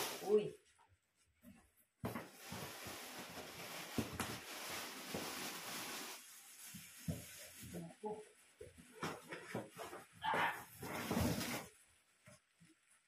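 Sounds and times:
packaging rustling and crinkling: 0:02.0 - 0:07.9, 0:10.6 - 0:11.8.

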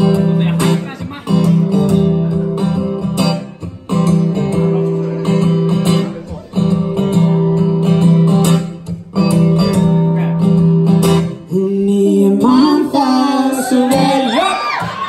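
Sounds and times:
acoustic guitar strumming: 0:00.0 - 0:15.0
person singing: 0:11.3 - 0:15.0.

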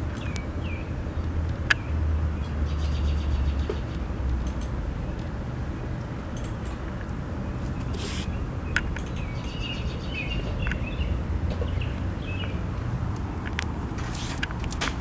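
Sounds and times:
small birds chirping: 0:00.0 - 0:15.0
steady low rumble: 0:00.0 - 0:15.0
sharp clicks: 0:01.2 - 0:05.4, 0:06.0 - 0:09.9.

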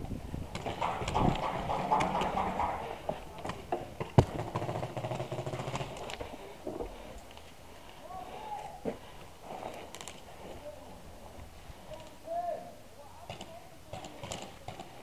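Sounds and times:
sharp crack: 0:00.6 - 0:04.8.

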